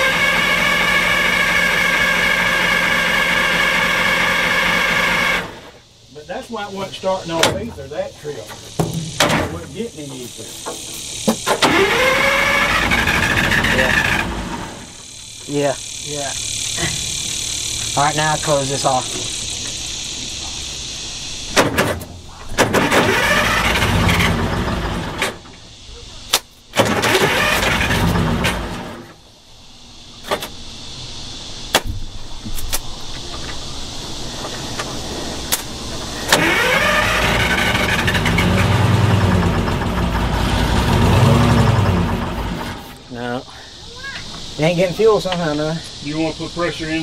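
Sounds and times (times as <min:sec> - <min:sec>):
engine cranking on starter: 0:00.0 - 0:05.7, 0:08.6 - 0:16.0, 0:22.6 - 0:25.6, 0:26.7 - 0:29.2, 0:34.7 - 0:43.0.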